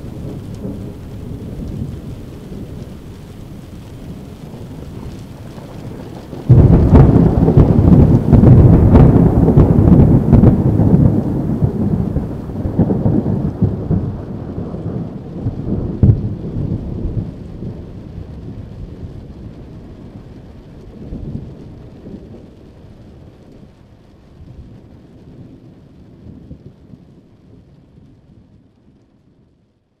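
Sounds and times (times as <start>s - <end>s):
thunder rumbling: 0.0s - 29.6s
rain falling: 0.0s - 30.0s.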